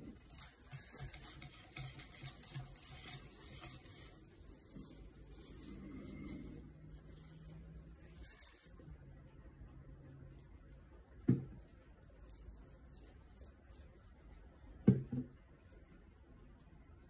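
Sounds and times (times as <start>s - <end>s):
low steady hum: 0.0s - 17.0s
paper towel rustling: 0.1s - 8.8s.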